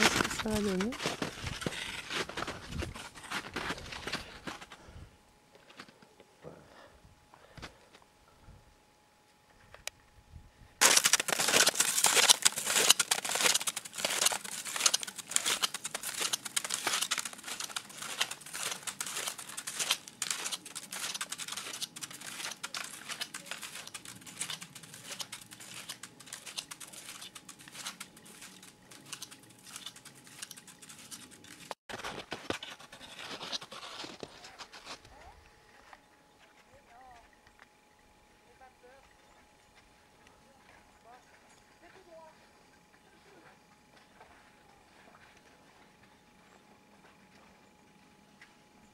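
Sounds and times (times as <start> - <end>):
snowshoe steps crunching in snow: 10.8 - 21.0.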